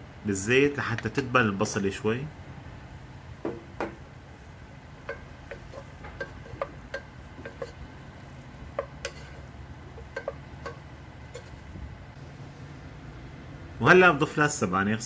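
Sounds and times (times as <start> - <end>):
low steady hum: 0.0 - 15.0
wooden spoon knocking on pot: 3.4 - 4.0, 5.0 - 7.8, 8.7 - 11.5.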